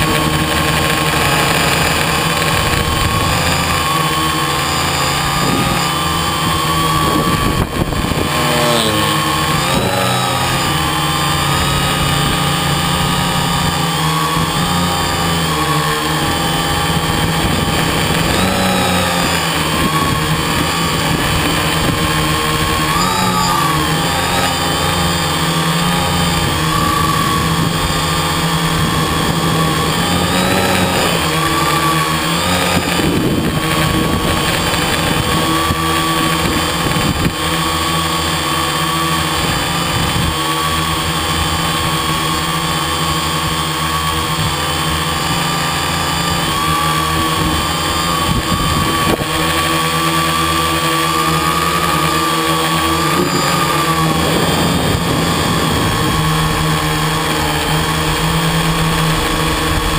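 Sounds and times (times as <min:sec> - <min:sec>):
quadcopter motors whining: 0:00.0 - 0:59.9.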